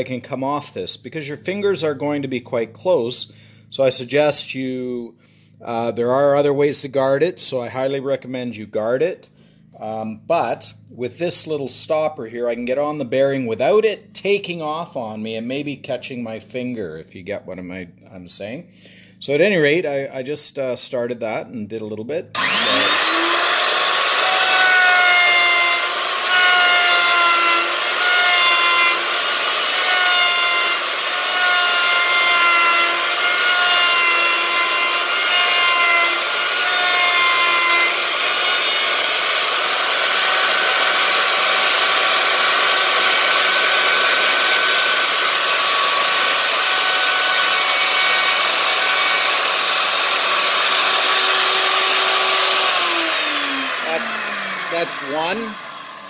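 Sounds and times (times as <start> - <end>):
router whining: 22.3 - 56.0
router winding down: 22.3 - 56.0.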